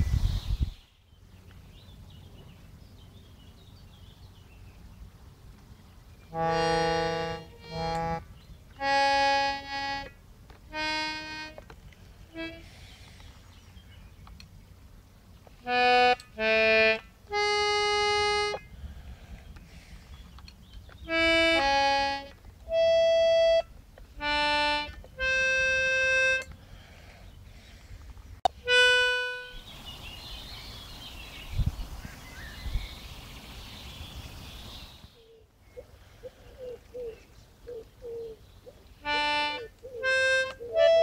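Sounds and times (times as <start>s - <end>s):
birds chirping: 0.0s - 10.1s, 18.3s - 23.6s, 24.2s - 41.0s
button accordion notes and chords: 6.3s - 8.2s, 8.8s - 11.7s, 12.3s - 12.7s, 15.6s - 18.6s, 21.1s - 26.6s, 28.4s - 29.6s, 39.0s - 41.0s.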